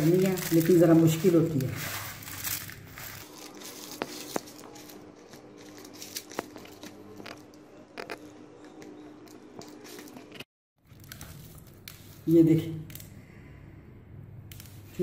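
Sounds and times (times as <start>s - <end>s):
hands squishing crumbly bread: 0.0s - 7.2s.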